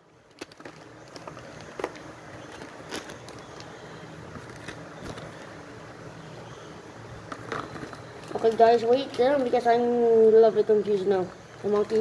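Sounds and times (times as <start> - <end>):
faint steady hiss: 0.0 - 12.0.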